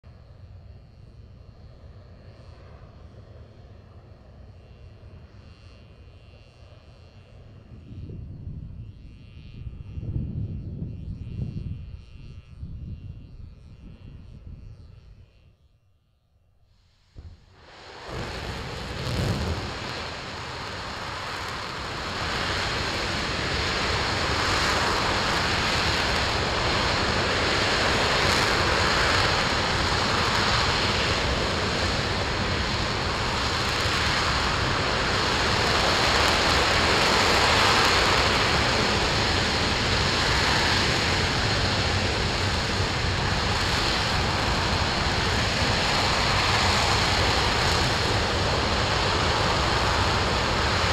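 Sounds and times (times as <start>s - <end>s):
rocket engine roaring: 17.0s - 50.9s.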